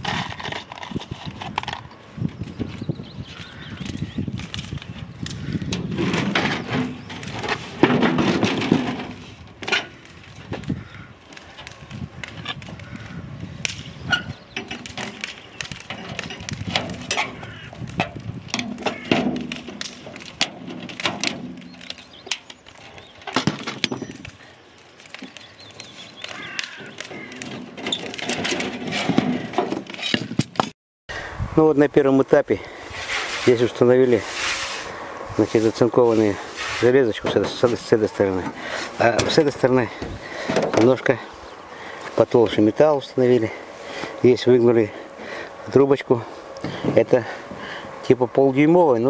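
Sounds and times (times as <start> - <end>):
hand tools set down: 6.0 - 9.9, 23.3 - 24.2.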